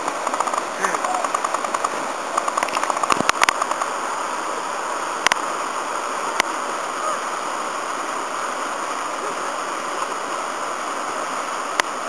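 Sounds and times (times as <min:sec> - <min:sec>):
sharp clicks or knocks: 0:00.0 - 0:03.9
whitewater rushing: 0:00.0 - 0:12.0.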